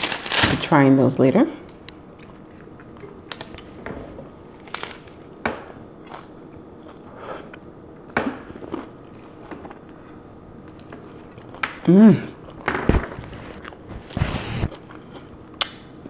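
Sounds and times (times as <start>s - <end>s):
crunching taco shell: 4.6s - 5.3s.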